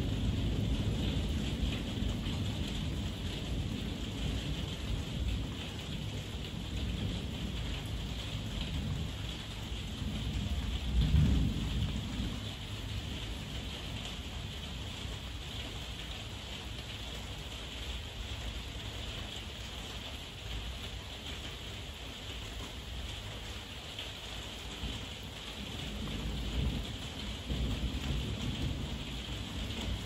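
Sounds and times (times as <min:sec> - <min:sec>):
low rumble of thunder: 0:00.0 - 0:18.1, 0:24.4 - 0:30.0
heavy rain falling: 0:00.0 - 0:30.0.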